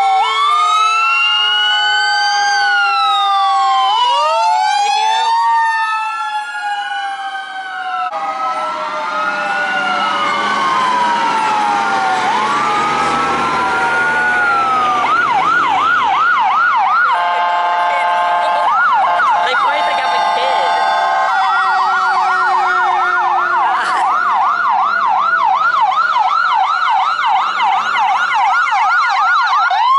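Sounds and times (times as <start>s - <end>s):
emergency sirens wailing: 0.0s - 29.9s
siren yelp: 0.0s - 29.9s
blaring horn: 17.0s - 24.4s.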